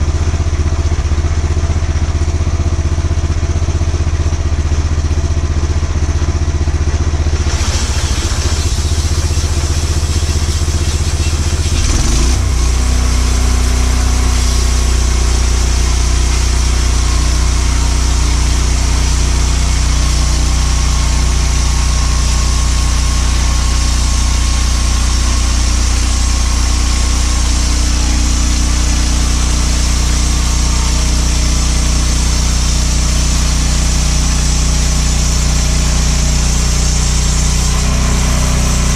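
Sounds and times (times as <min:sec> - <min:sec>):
sawmill engine running: 0:00.0 - 0:38.9
hiss: 0:07.5 - 0:12.1.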